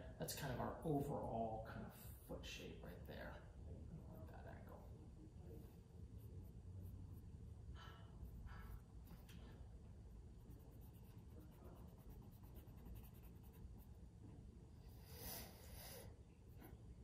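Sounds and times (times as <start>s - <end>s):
pencil scratching on paper: 6.0s - 14.0s.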